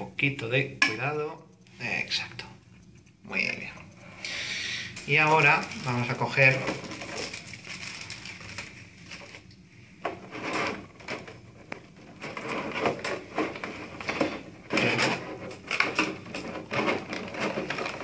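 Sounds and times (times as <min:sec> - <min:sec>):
plastic packaging crinkling: 0:04.8 - 0:18.0.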